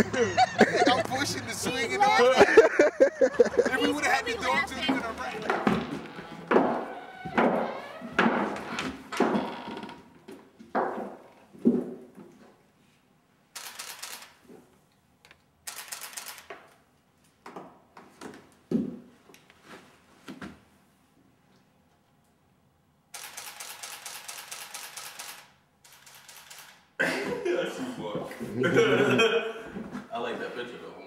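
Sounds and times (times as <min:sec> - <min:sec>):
camera shutter clicking: 0:13.6 - 0:14.4, 0:15.7 - 0:16.5, 0:23.2 - 0:26.9.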